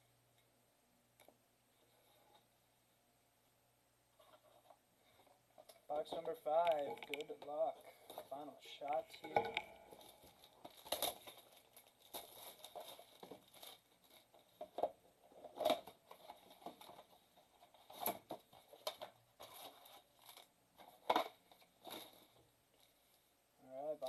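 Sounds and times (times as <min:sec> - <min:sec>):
cardboard crinkling and tearing: 0:09.9 - 0:22.4.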